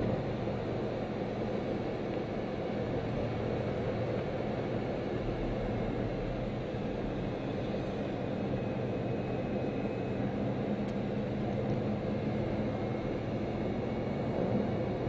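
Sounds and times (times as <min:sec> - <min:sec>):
car engine from inside cabin: 0:00.0 - 0:15.0.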